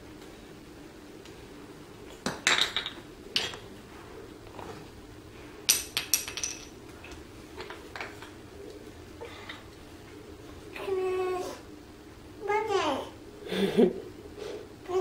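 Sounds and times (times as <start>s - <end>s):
toy pieces dropping on wooden floor: 2.2s - 3.0s, 5.7s - 6.7s
wooden toy pieces clacking: 5.7s - 6.7s.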